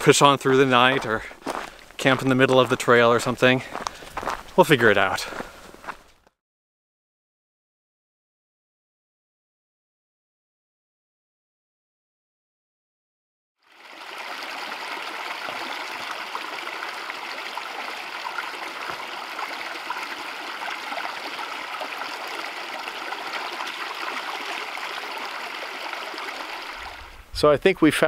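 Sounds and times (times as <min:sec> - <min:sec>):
creek water running over rocks: 0:00.1 - 0:06.0, 0:13.6 - 0:27.4.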